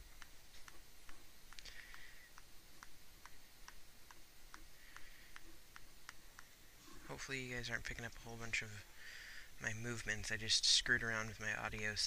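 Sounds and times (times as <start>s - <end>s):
stylus tapping on tablet: 0.0s - 6.5s
soft hiss: 0.0s - 12.0s.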